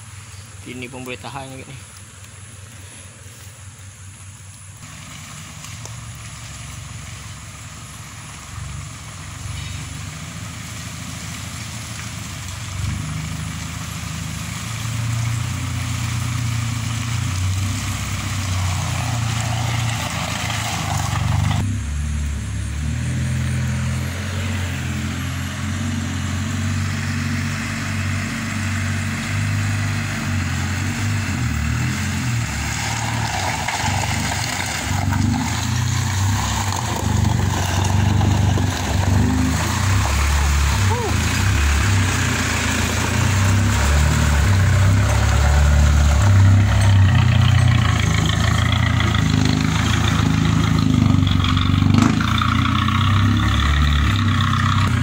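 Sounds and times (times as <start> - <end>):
vehicle engine running under load: 0.0 - 55.0.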